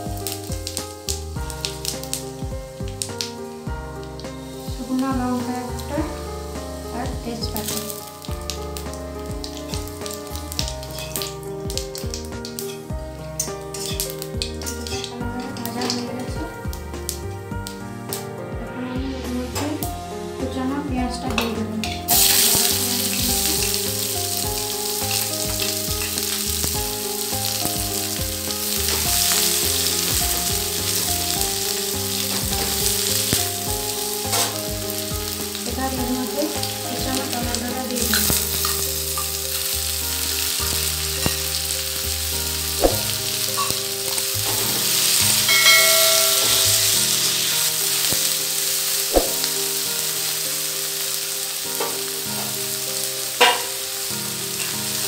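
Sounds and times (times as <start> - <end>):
onion sizzling in hot oil: 0.0 - 55.0
spatula clinking against pan: 45.5 - 47.0.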